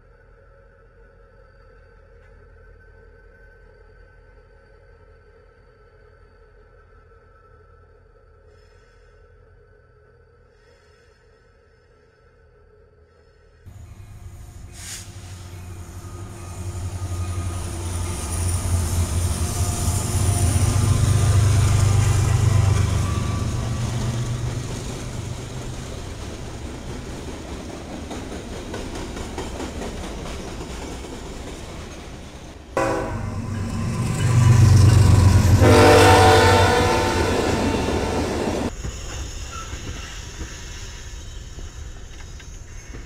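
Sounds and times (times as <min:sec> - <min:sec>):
train rolling past: 0:13.6 - 0:43.0.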